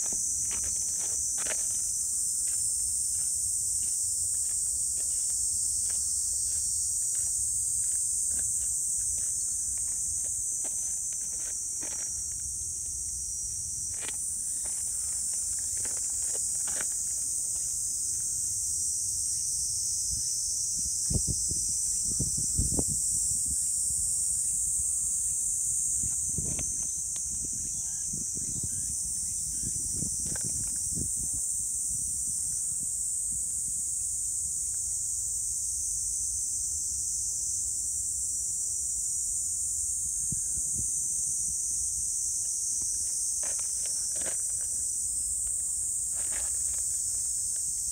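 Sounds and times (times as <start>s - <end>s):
insects shrilling: 0.0s - 18.6s, 39.9s - 47.9s.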